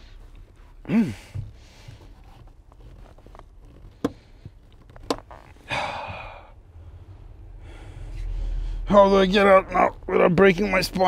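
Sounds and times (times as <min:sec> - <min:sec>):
heavy breath out: 0:05.6 - 0:08.9.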